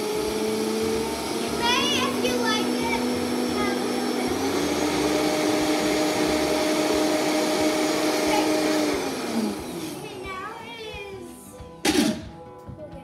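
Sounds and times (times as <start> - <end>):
blender motor grinding: 0.0 - 10.2.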